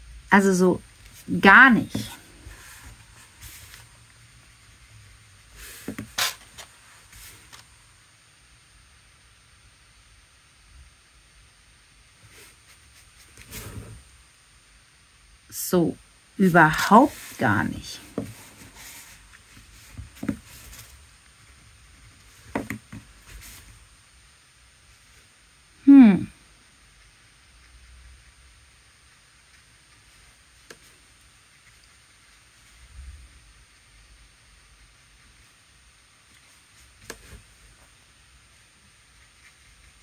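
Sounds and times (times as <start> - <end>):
art supplies knocking on table: 22.5 - 23.0.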